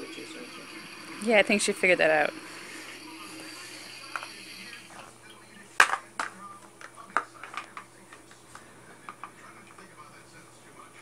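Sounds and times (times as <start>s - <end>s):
plastic toys knocking together: 5.8s - 6.4s.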